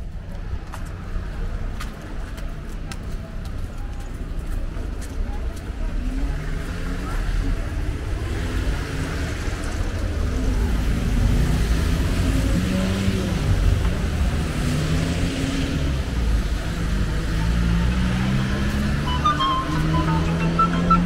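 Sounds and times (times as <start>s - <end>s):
car engines passing: 0.0s - 21.0s.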